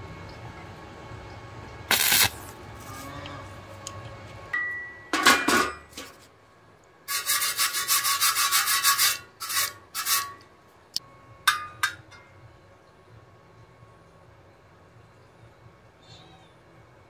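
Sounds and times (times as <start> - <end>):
scraping on steel tube: 7.1 - 10.4.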